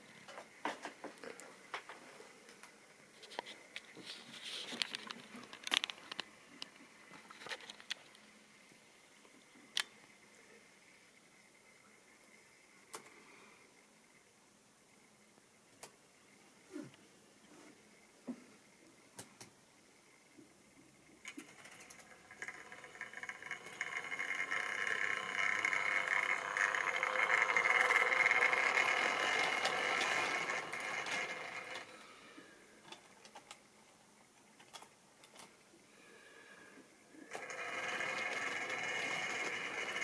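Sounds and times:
model train motor whining: 0:21.2 - 0:32.4, 0:37.2 - 0:40.0.

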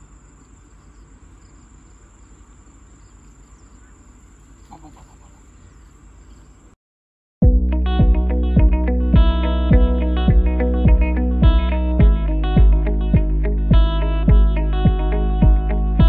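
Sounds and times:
loud electric guitar music: 0:07.4 - 0:16.0
low rumble: 0:07.4 - 0:16.0.

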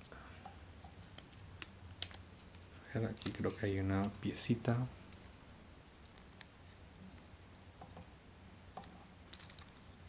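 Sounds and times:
low steady hum: 0:00.0 - 0:10.0.

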